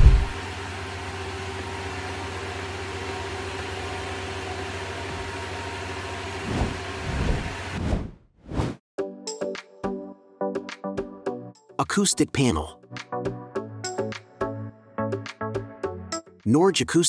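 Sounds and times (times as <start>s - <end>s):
low thuds: 0.0s - 0.4s, 6.4s - 8.1s
machine engine humming and whining: 0.0s - 7.8s.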